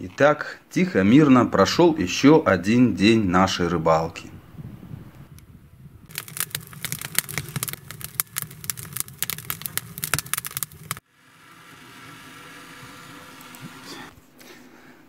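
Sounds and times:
firewood crackling and popping: 6.0 - 14.1
steady hum: 7.7 - 14.4.

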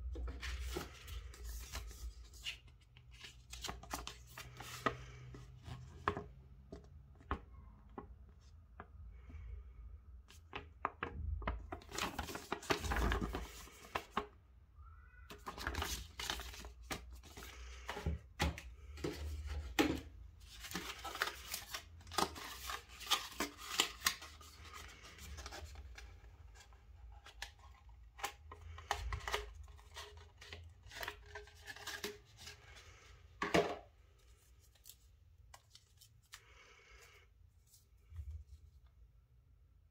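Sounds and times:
paper rustling: 0.2 - 6.1, 15.3 - 18.1.

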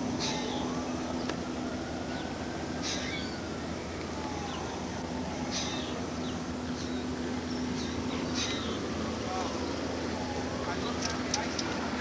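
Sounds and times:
steady low hum: 0.0 - 12.0
short high bird calls: 0.2 - 0.8.

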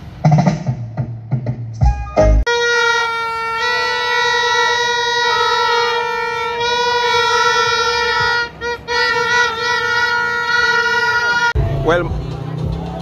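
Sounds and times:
horn long steady blast: 2.0 - 12.7.

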